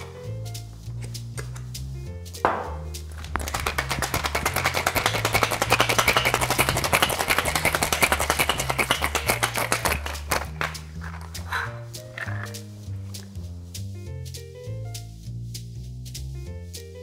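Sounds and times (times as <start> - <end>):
shaker capped with knock: 0.0 - 14.4
background music: 0.0 - 17.0
ice rattling in cocktail shaker: 3.1 - 13.2.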